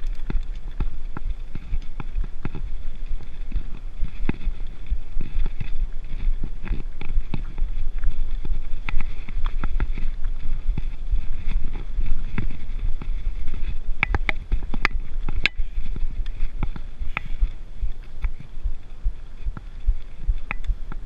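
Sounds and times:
bike tyres rumbling on dirt: 0.0s - 21.0s.

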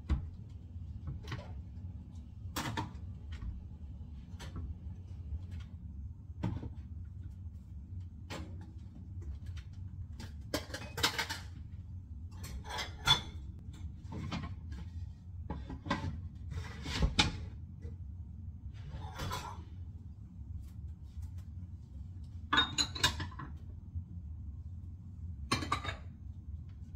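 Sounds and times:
steady low hum: 0.0s - 26.9s
dishes clinking and knocking: 10.2s - 11.6s, 12.4s - 13.5s, 22.5s - 23.6s, 25.5s - 26.2s.

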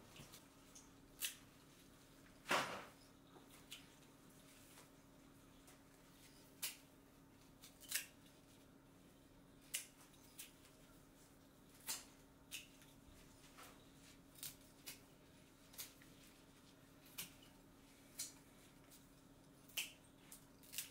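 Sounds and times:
faint steady hum: 0.0s - 20.9s
scissors snipping stems: 1.2s - 1.4s, 6.6s - 8.2s, 9.6s - 10.6s, 14.3s - 15.1s, 19.7s - 20.9s.

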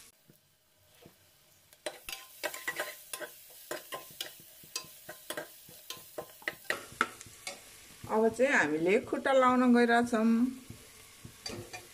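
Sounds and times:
faint frying sizzle: 0.0s - 11.9s
spatula scraping a pot: 1.9s - 8.1s, 10.7s - 11.9s.

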